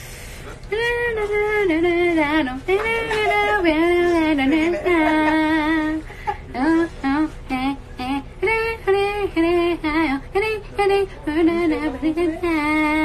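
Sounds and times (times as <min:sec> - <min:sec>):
woman singing wordless melody: 0:00.7 - 0:13.0.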